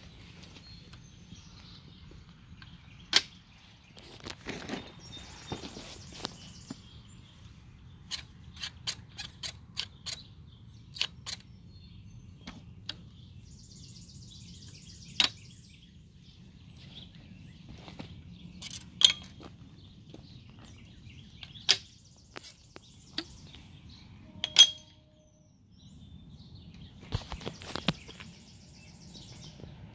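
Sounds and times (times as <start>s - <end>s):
metal gate latch clicking: 24.4s - 25.0s.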